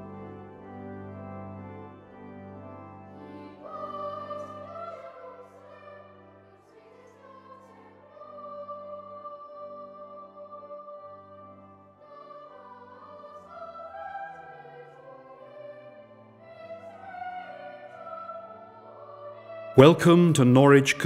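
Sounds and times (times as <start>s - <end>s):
high voice singing held notes: 19.8s - 21.0s.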